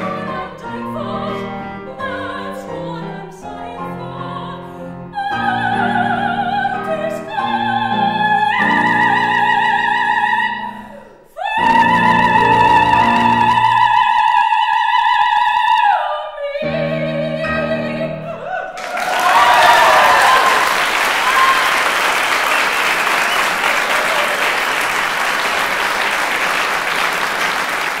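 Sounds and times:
piano chords: 0.0s - 14.3s, 16.4s - 18.5s.

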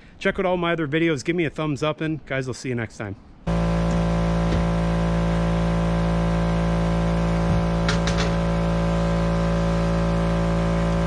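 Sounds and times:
air compressor running: 3.5s - 11.0s.

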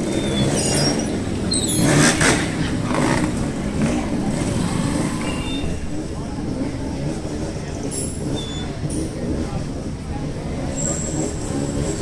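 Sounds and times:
motorcycle engines revving: 0.0s - 12.0s.

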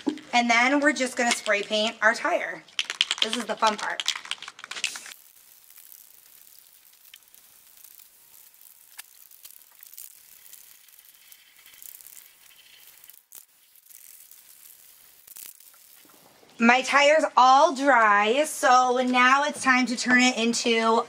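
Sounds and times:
spray paint can hissing: 2.8s - 16.2s.

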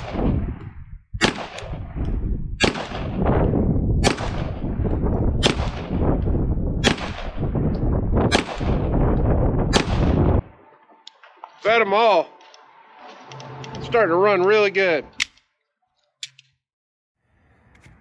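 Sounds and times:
wind buffeting microphone: 0.0s - 10.6s
pistol shots: 1.2s - 2.0s, 2.6s - 6.2s, 6.8s - 7.5s, 8.2s - 10.3s.

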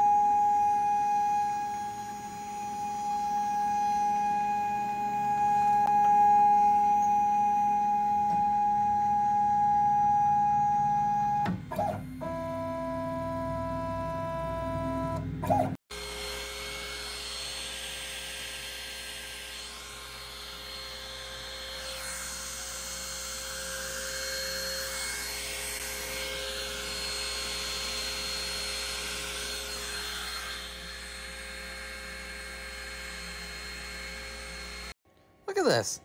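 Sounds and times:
stepper motor whine: 0.0s - 34.9s
router spindle and vacuum whirring: 1.4s - 5.9s, 15.4s - 34.9s.

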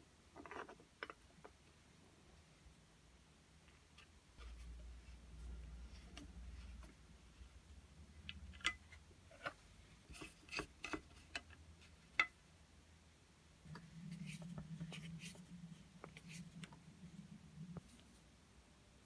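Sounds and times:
low steady hum: 1.0s - 19.0s.

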